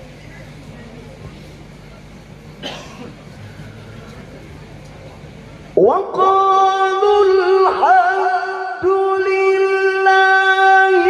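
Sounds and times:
man chanting into a microphone: 5.8 - 11.0.

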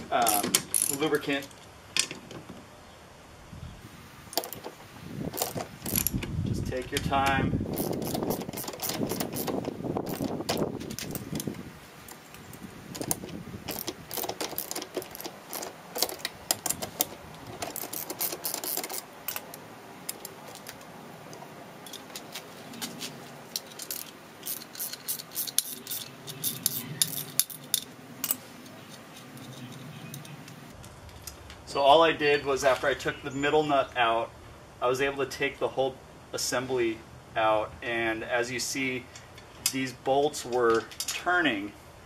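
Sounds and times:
socket ratchet clicking: 5.3 - 6.2, 7.7 - 11.6, 13.0 - 20.6, 23.6 - 30.6
light metallic clicks and clinks: 23.5 - 31.3.

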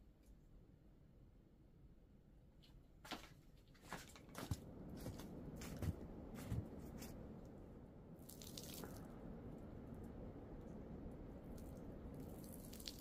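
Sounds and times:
wet snow crunching: 3.9 - 7.2.

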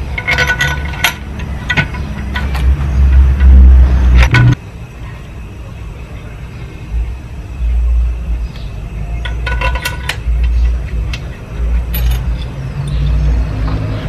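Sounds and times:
heavy low rumble: 0.0 - 4.6
metal tools clinking: 0.0 - 4.6, 9.2 - 13.1.

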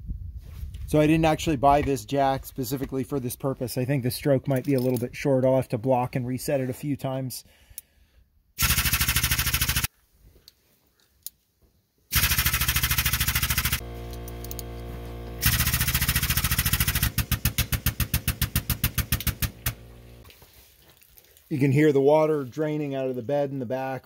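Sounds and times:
air pump chattering: 8.6 - 9.9, 12.1 - 20.2.

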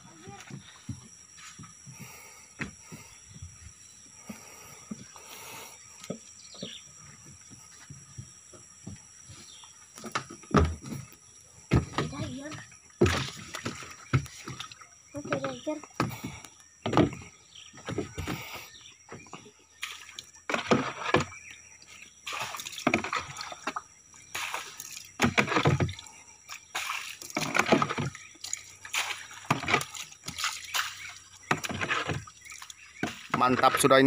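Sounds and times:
water sloshing from scoop: 13.0 - 16.4, 19.8 - 34.0.

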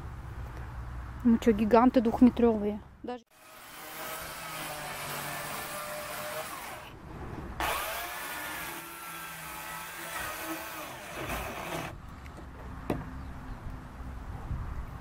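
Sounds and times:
electric chainsaw cutting timber: 3.3 - 7.0, 7.6 - 12.0.

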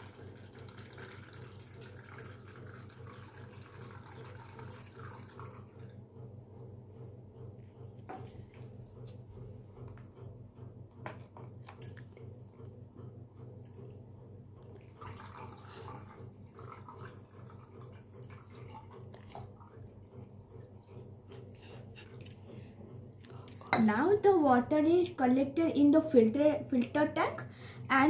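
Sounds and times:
water poured into plastic cup: 0.0 - 5.6, 15.0 - 19.6.

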